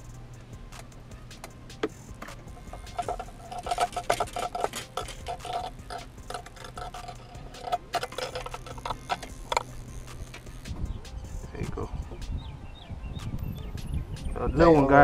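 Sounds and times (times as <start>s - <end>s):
fishing reel cranking clicks: 2.7s - 10.6s.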